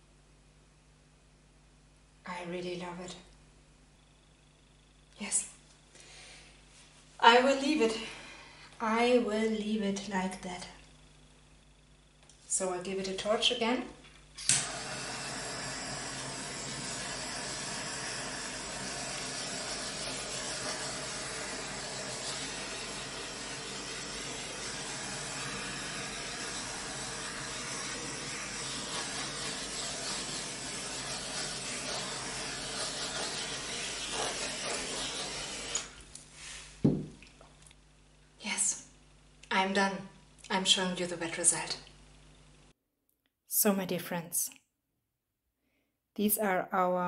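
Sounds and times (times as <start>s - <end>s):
gas torch clicking alight: 14.4s - 19.3s
torch flame hissing: 14.4s - 36.8s
single knock: 36.8s - 37.2s.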